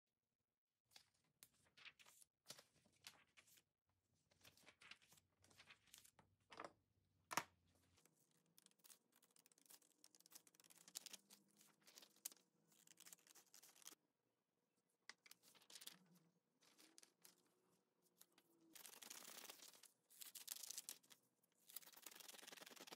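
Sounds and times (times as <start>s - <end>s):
paper rustling: 4.3s - 6.1s, 7.8s - 14.0s, 15.3s - 17.5s, 18.3s - 22.9s.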